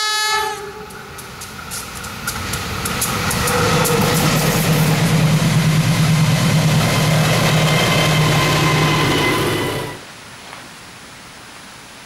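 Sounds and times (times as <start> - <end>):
higher steady tones: 0.6 - 10.0
locomotive engine drone: 0.6 - 10.0.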